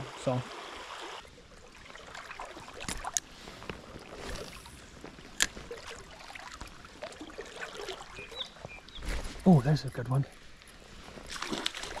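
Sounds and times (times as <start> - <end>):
small creek rushing: 0.0 - 12.0
reel and rod clicks: 2.8 - 3.3, 5.3 - 5.6.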